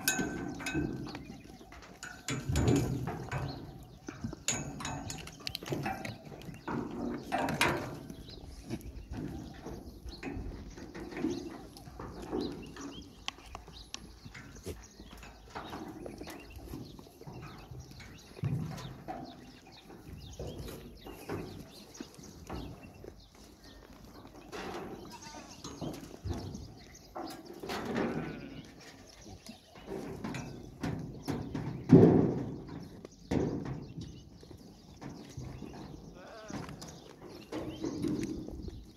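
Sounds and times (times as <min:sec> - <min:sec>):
sharp clicks and knocks: 0:00.0 - 0:23.2
goat hooves shuffling: 0:00.0 - 0:38.9
goats bleating: 0:25.0 - 0:25.7, 0:27.8 - 0:28.9, 0:36.0 - 0:37.1.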